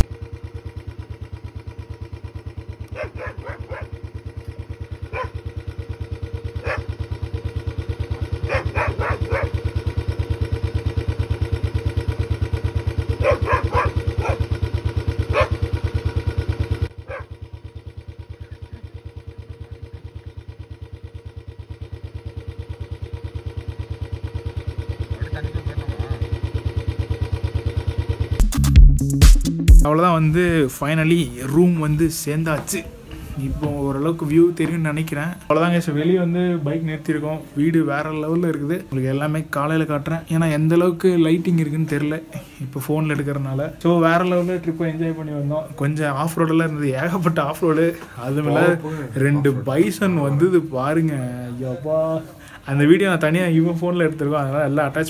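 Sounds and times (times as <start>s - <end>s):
motorcycle engine idling: 0.0s - 55.0s
dogs barking: 2.8s - 4.1s, 5.0s - 5.5s, 6.5s - 7.0s, 8.2s - 9.8s, 13.1s - 14.6s, 15.2s - 16.2s, 17.0s - 17.4s, 25.2s - 26.3s.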